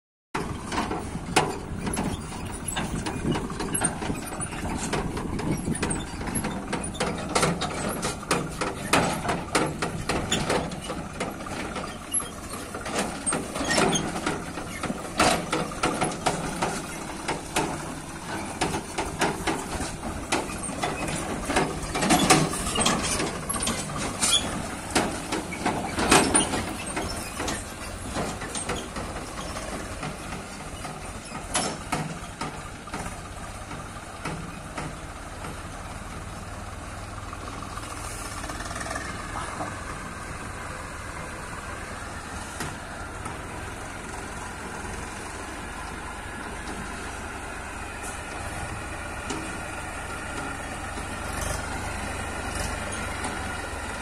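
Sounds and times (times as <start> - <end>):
tractor engine running: 0.4 - 54.0
trolley rattling and clanking: 0.4 - 54.0.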